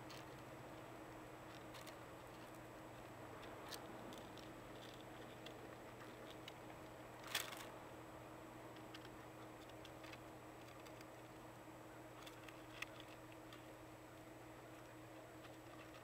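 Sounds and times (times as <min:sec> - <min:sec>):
seeds clicking and rustling: 0:00.0 - 0:07.8, 0:12.1 - 0:16.0
faint steady hum: 0:00.0 - 0:16.0.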